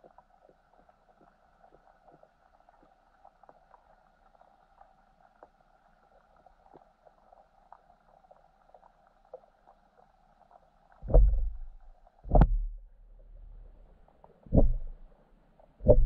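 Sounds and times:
faint underwater hum: 0.0 - 16.0
heavy muffled thumps: 11.0 - 12.9, 14.5 - 15.0.

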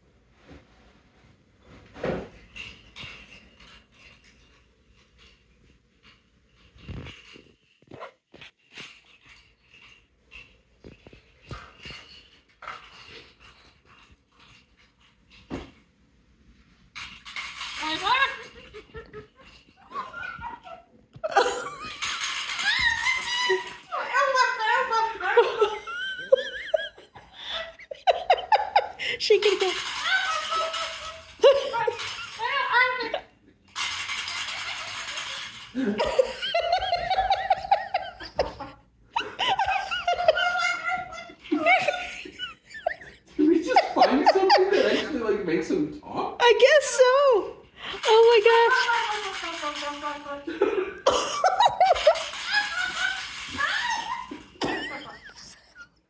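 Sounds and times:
rattle ball shaken: 16.6 - 20.8, 21.4 - 27.0, 27.8 - 44.5, 47.9 - 50.5, 51.4 - 55.8.

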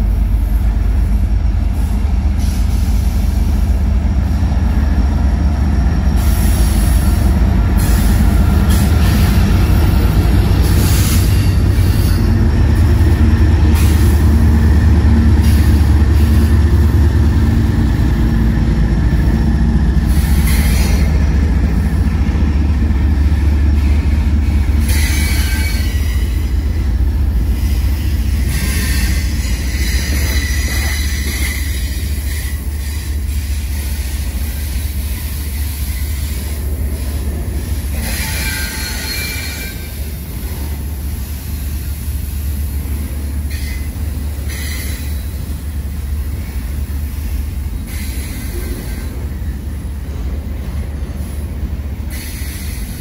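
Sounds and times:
train wheels rumbling on rail: 0.0 - 53.0
wheel squeal: 28.5 - 33.3, 37.9 - 40.0.

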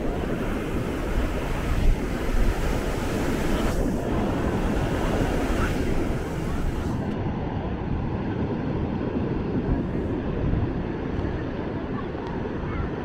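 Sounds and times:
surf washing onto beach: 0.0 - 7.2
wind rumbling on microphone: 0.0 - 13.0.

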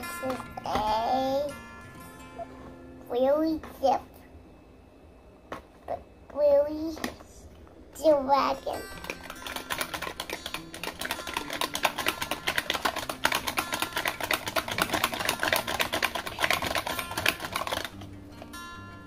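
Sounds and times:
toy car rattling in box: 8.8 - 18.0.

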